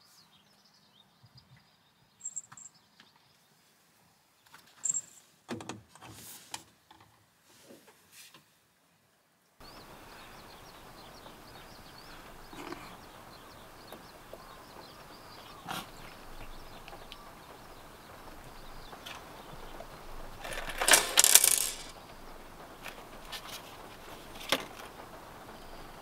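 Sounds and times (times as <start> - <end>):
metallic clinking and jingling: 20.4 - 21.9.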